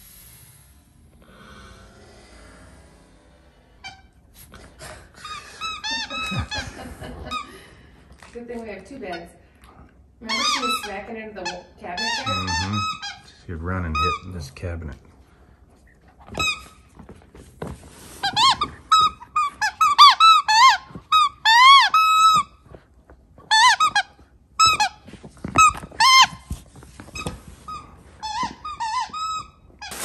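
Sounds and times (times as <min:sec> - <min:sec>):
squeaky toy squeaks: 0:10.2 - 0:14.5, 0:16.3 - 0:16.8, 0:18.2 - 0:22.6, 0:23.5 - 0:26.5, 0:27.1 - 0:30.0.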